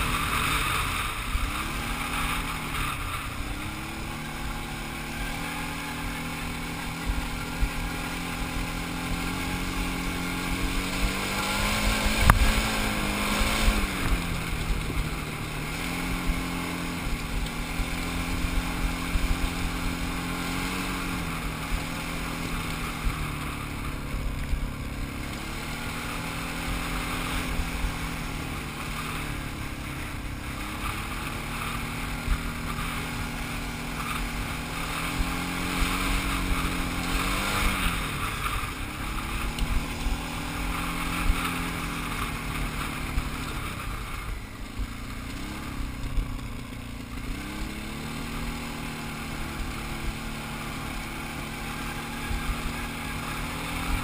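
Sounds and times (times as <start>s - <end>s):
quad bike engine running: 0.0s - 54.0s.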